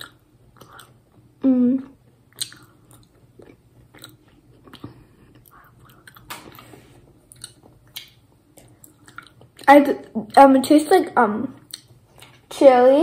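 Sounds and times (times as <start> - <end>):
chewing with mouth clicks: 0.0 - 1.2, 2.3 - 6.7, 7.3 - 10.4, 11.6 - 12.4.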